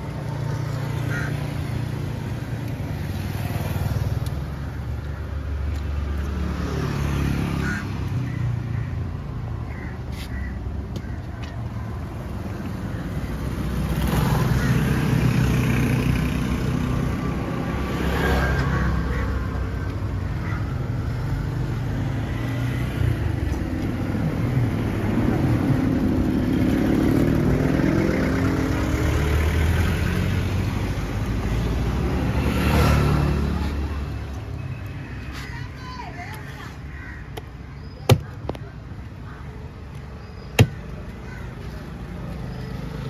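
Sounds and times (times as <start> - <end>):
sharp knocks: 40.6 - 40.8.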